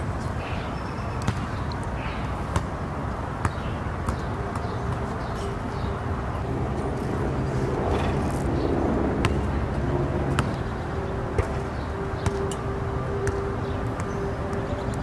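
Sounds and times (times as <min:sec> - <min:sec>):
low traffic noise: 0:00.0 - 0:15.0
basketball bouncing on asphalt: 0:01.1 - 0:01.7, 0:02.4 - 0:02.8, 0:03.4 - 0:05.9, 0:09.2 - 0:12.6, 0:13.2 - 0:15.0.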